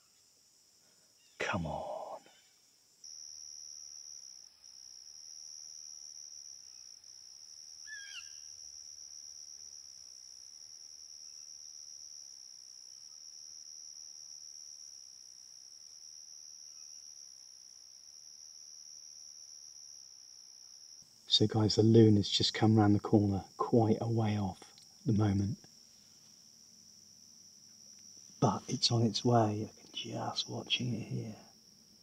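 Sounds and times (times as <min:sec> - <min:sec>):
insect trilling: 0:01.2 - 0:10.1, 0:16.6 - 0:17.8, 0:19.0 - 0:32.0.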